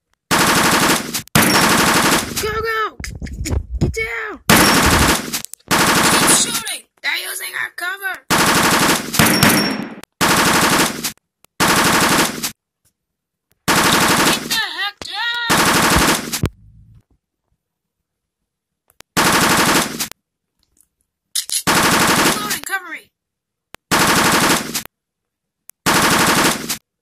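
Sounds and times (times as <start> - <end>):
automatic gunfire bursts: 0.3 - 2.4, 4.5 - 6.6, 8.3 - 12.5, 13.7 - 14.6, 15.5 - 16.4, 19.2 - 20.1, 21.7 - 22.6, 23.9 - 24.8, 25.9 - 26.8.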